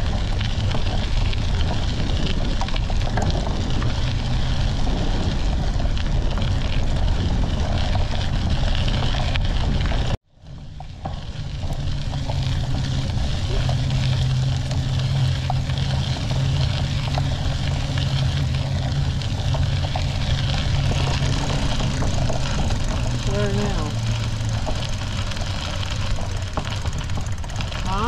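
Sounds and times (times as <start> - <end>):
bicycle rolling on dirt road: 0.0 - 28.0.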